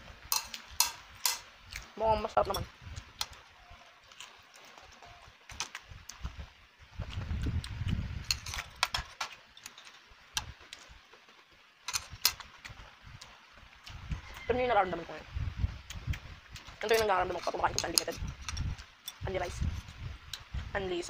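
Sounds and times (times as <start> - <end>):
chewing crunchy food: 2.9 - 6.4.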